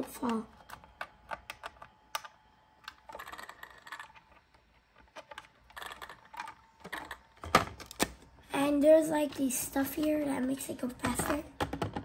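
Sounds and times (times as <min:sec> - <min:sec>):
plastic clicks: 0:00.0 - 0:08.2.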